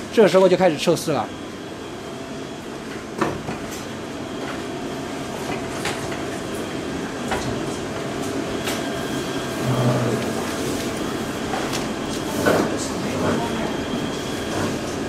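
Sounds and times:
welding machine humming: 3.8 - 15.0.

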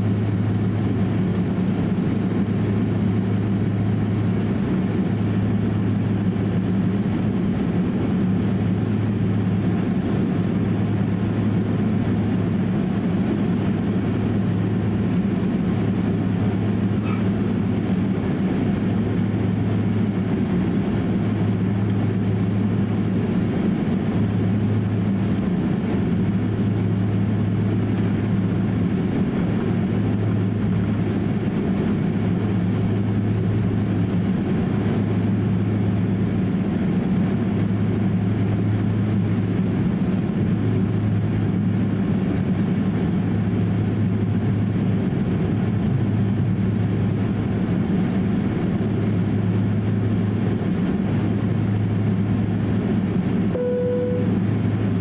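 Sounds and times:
jet engines low hum and rumble: 0.0 - 55.0.

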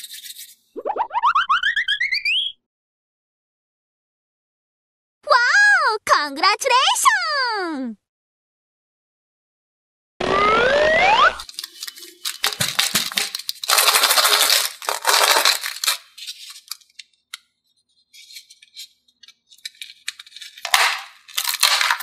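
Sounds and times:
foil crinkling and rattling: 11.4 - 17.3, 17.9 - 22.0.

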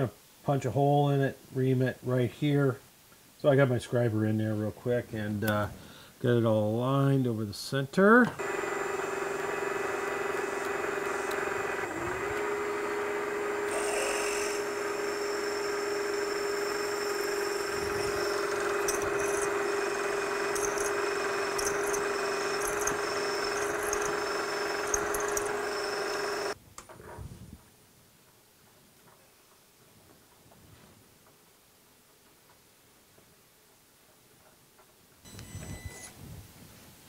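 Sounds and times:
milling machine spindle whine: 8.4 - 26.6
drill bit squeaking in metal: 13.7 - 26.6.

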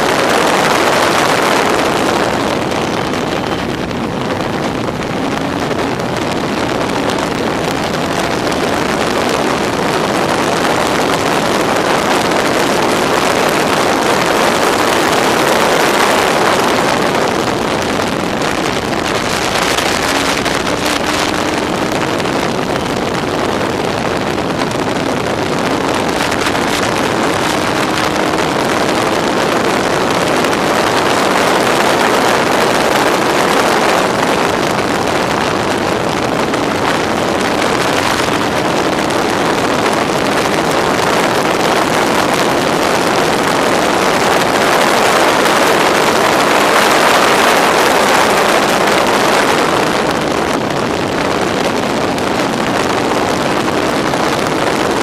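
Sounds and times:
motorcycle engine running hard: 0.0 - 55.0
wind rushing over microphone: 0.0 - 55.0.

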